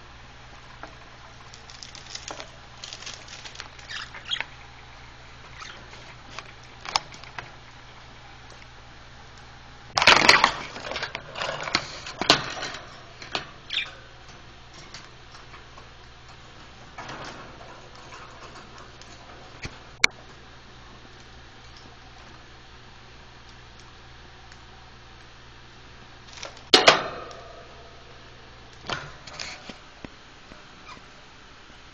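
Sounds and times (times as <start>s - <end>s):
budgerigars fluttering in cage: 1.7s - 4.6s.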